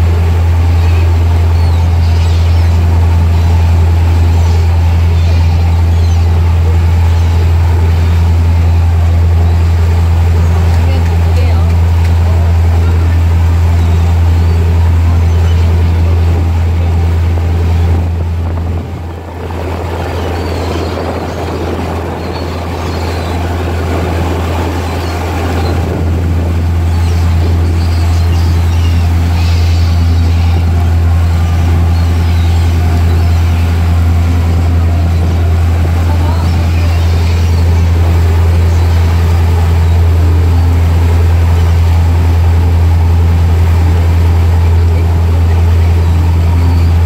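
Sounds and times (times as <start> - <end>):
boat engine low drone: 0.0 - 47.0
rushing boat wake: 0.0 - 47.0.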